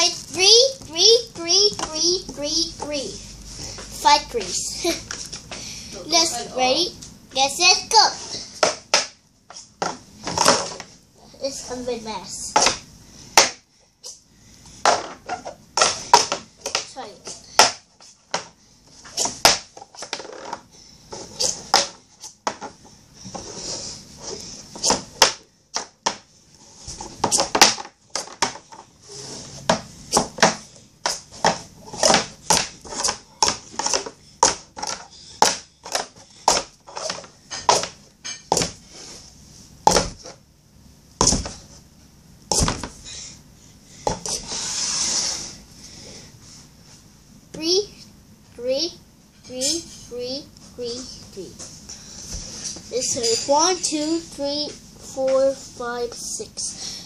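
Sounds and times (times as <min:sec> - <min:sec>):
plastic cups clacking: 0:29.7 - 0:38.8
cups sliding hiss: 0:44.3 - 0:45.6.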